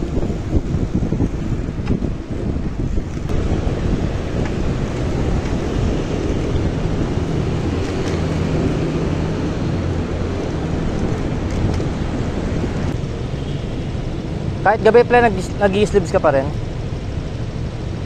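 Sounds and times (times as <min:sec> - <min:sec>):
wind rumbling on microphone: 0:00.0 - 0:13.2
low engine hum: 0:00.0 - 0:14.8.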